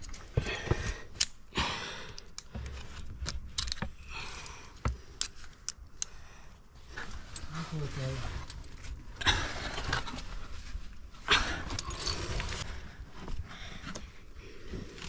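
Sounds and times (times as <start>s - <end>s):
metal climbing gear clinking: 0.0s - 6.2s, 11.3s - 12.7s
rustling and scraping: 6.8s - 15.0s.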